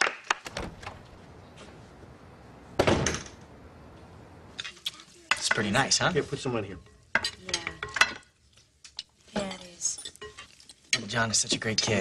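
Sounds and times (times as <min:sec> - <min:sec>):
door slamming: 0:00.4 - 0:01.1, 0:02.8 - 0:03.5.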